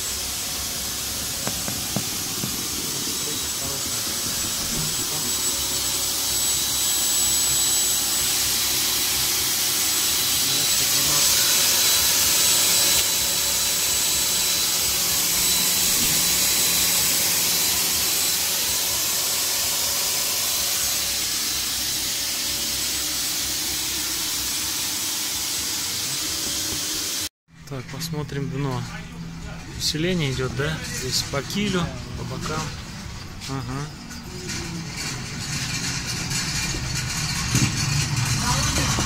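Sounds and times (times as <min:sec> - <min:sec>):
electric air pump hissing: 0:00.0 - 0:27.3.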